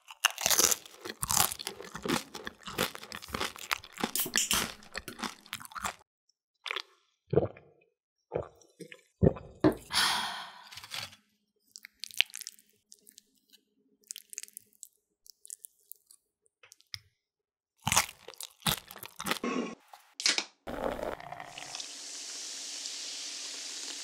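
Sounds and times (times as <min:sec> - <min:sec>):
tortilla chips crunching: 0:00.0 - 0:06.0, 0:17.8 - 0:19.4
beer pouring into a glass: 0:20.7 - 0:23.2
beer foam fizzing: 0:20.7 - 0:24.0.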